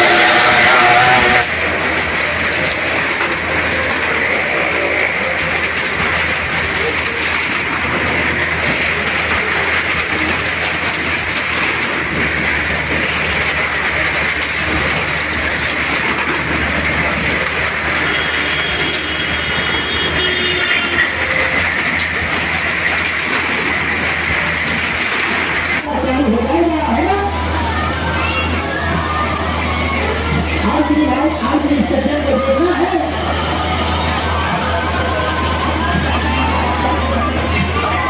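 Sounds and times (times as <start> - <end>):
thin high whine: 0.0 - 2.1
car engines and tyres on planks: 0.0 - 38.0.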